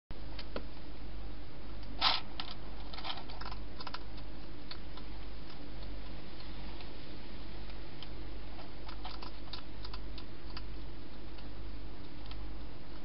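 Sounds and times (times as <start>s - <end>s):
steady low hum: 0.1s - 13.0s
hedgehog eating crunchy clicks: 2.4s - 6.9s, 7.6s - 13.0s.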